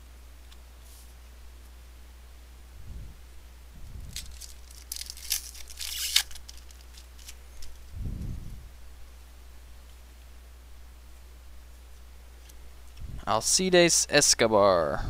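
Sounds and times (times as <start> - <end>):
steady low hum: 0.0 - 15.0
foil wrapper tearing and crinkling: 4.1 - 7.8
soft low thumps: 7.8 - 8.8.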